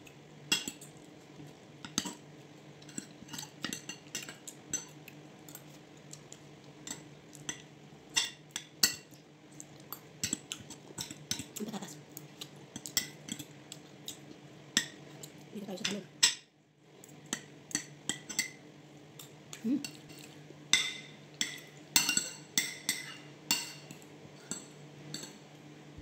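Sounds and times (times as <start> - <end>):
steady low hum: 0.0 - 26.0
cutlery clinking on a plate: 20.8 - 25.4.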